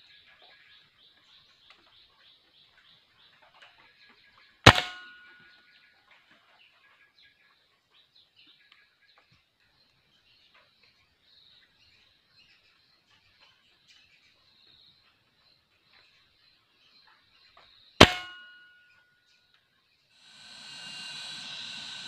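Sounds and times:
small birds chirping: 0.0s - 22.0s
rifle shot: 4.7s - 5.3s
steady high buzz: 20.2s - 22.0s.

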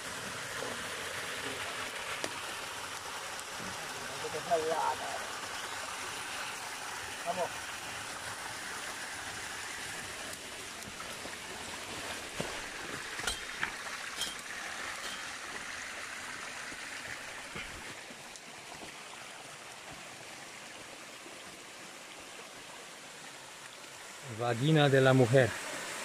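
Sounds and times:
stream water rushing over rocks: 0.0s - 26.0s
booted footsteps on stones: 12.3s - 14.4s, 17.5s - 18.0s.

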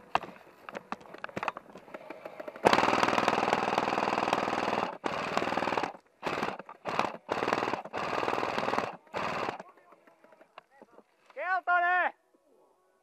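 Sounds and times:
electric toy gun firing bursts: 1.9s - 9.6s.

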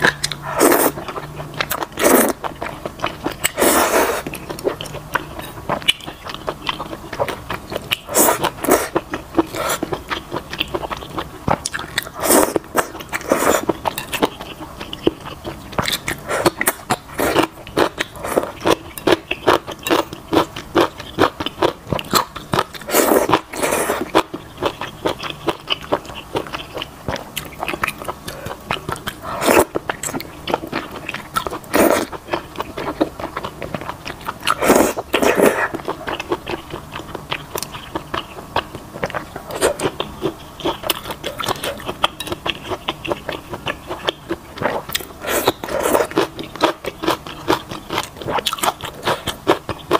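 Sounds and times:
slurping noodles: 0.4s - 1.1s, 2.0s - 2.4s, 3.4s - 4.3s, 8.1s - 9.9s, 12.2s - 13.7s, 22.9s - 24.2s, 29.2s - 29.8s, 31.7s - 32.1s, 34.5s - 35.8s, 44.6s - 46.3s.

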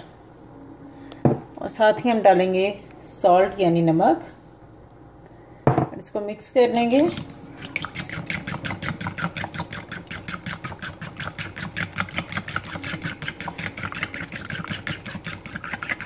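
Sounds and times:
eggs beaten in a bowl: 6.7s - 16.0s.

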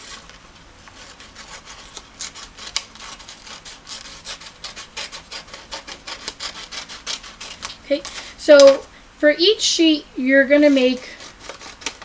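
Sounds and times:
paper rustling and crinkling: 0.0s - 4.2s, 10.6s - 12.0s.

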